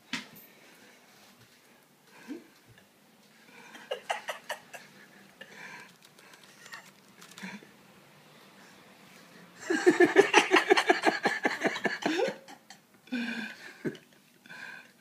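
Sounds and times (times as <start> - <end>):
person laughing: 3.7 - 4.9, 9.6 - 12.7.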